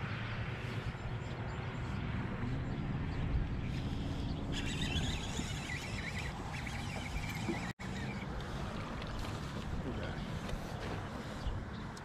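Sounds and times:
wind and water around boat: 0:00.0 - 0:12.0.

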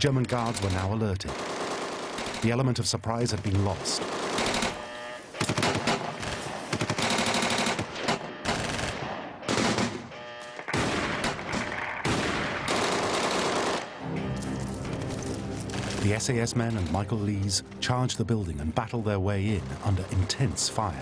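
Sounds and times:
automatic gunfire: 0:00.4 - 0:02.6, 0:03.5 - 0:10.1, 0:10.7 - 0:14.0.

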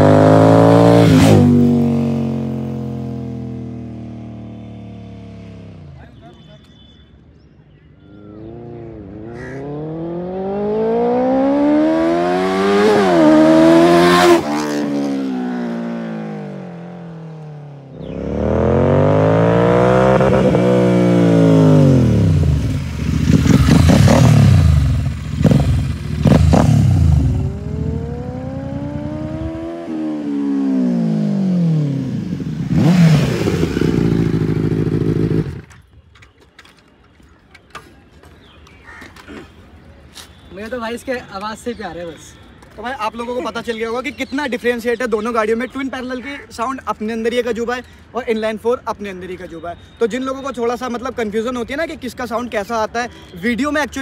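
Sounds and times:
motorcycle engine revving: 0:00.0 - 0:06.0, 0:08.2 - 0:35.8
motorcycles passing by: 0:00.0 - 0:06.6, 0:08.1 - 0:36.0.

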